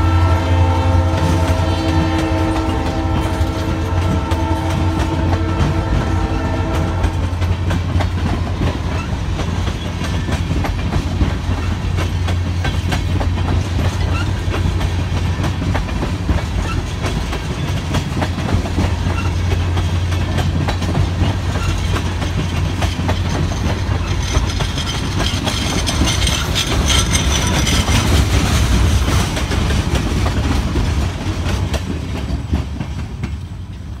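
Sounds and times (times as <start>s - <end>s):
train horn: 0.0s - 7.8s
freight train rumbling past: 0.0s - 34.0s
wheel clicks over rail joints: 7.2s - 33.5s.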